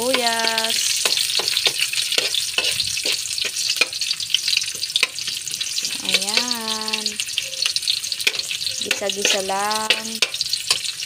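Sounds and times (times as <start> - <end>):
garlic and onion sizzling in oil: 0.0 - 11.0
metal spatula scraping a pan: 0.1 - 4.0, 8.2 - 11.0.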